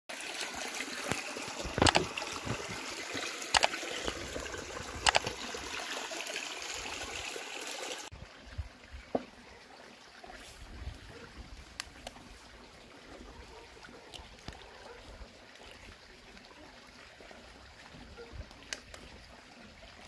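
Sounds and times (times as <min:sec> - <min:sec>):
water trickling over stones: 0:00.1 - 0:20.0
sharp clicks: 0:05.0 - 0:05.4.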